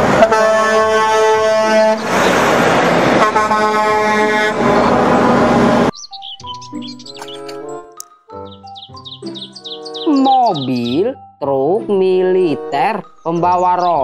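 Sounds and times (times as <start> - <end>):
truck air horn blasts: 0.0 - 2.1, 3.1 - 5.9
truck engine and road noise: 0.0 - 8.4.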